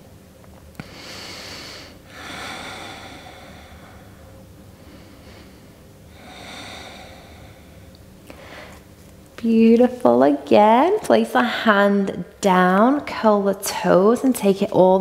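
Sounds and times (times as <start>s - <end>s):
woman breathing deeply: 0.8s - 8.9s.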